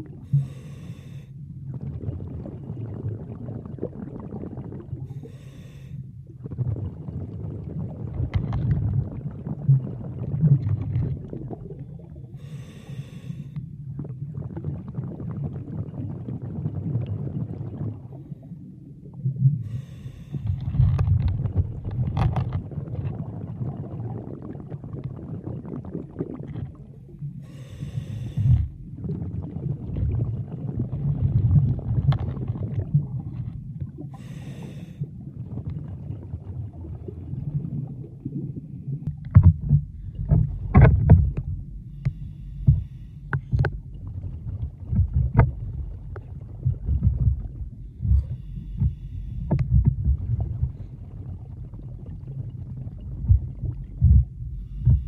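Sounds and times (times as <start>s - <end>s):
muffled underwater water rumble: 0.0s - 55.0s
sharp clicks and knocks: 39.1s - 43.8s.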